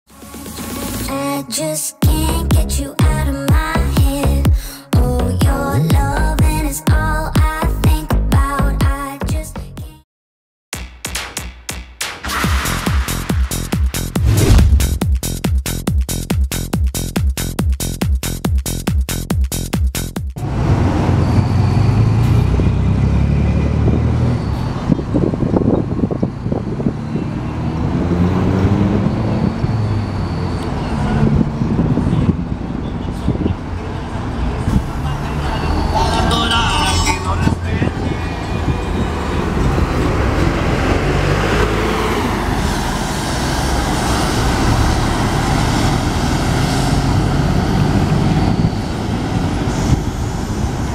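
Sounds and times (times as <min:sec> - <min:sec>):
bus diesel engine: 0:02.1 - 0:07.4, 0:20.4 - 0:50.9
traffic passing: 0:14.2 - 0:15.2, 0:20.4 - 0:50.9.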